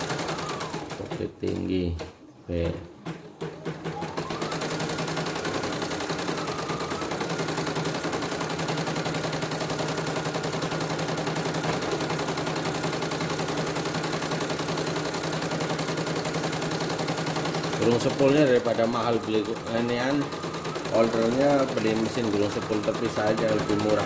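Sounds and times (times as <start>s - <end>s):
embroidery machine needle clattering: 3.0s - 24.0s.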